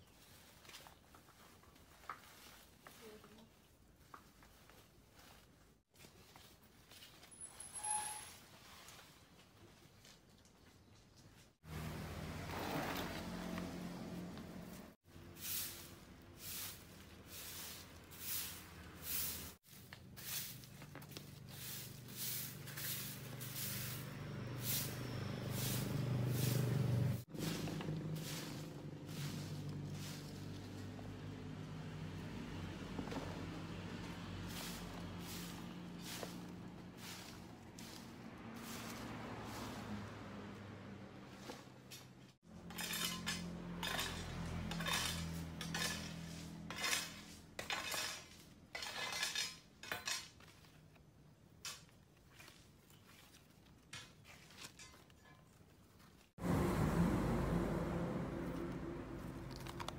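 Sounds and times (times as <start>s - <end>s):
broom swishing over leaves and gravel: 0.0s - 10.4s, 11.2s - 32.0s, 33.3s - 48.6s, 52.2s - 59.5s
dry leaves crackling and rustling: 15.4s - 31.7s, 33.8s - 40.5s.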